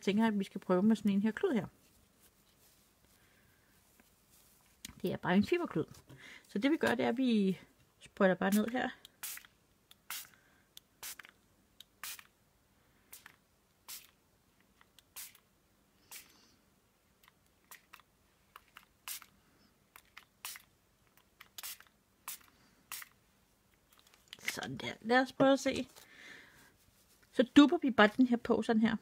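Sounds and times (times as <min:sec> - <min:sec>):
spray bottle squirts: 0:08.5 - 0:10.4, 0:11.0 - 0:11.3, 0:12.0 - 0:12.3, 0:13.1 - 0:14.2, 0:15.0 - 0:15.4, 0:16.1 - 0:16.4, 0:17.7 - 0:18.0, 0:18.6 - 0:19.3, 0:20.0 - 0:20.7, 0:21.4 - 0:23.2.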